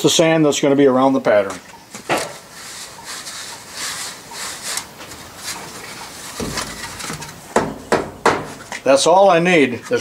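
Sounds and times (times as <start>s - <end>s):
sand rubbed through screen: 2.4s - 6.4s.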